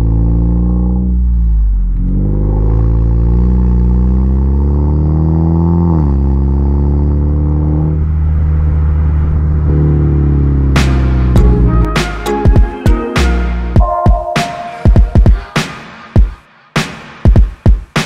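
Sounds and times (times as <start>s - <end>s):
car exhaust accelerating: 0.0s - 11.9s.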